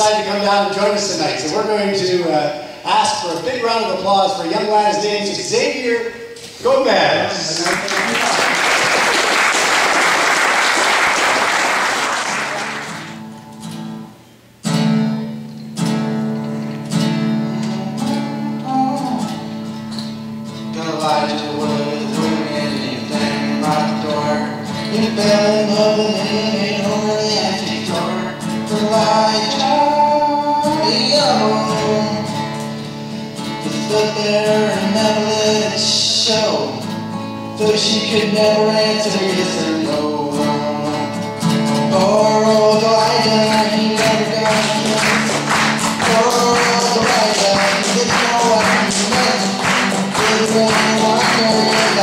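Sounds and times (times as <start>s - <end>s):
acoustic guitar strumming: 0.0s - 7.4s, 9.0s - 52.0s
audience applauding: 7.4s - 13.2s, 43.5s - 52.0s
young man singing: 17.5s - 19.5s, 20.6s - 36.9s, 37.5s - 52.0s.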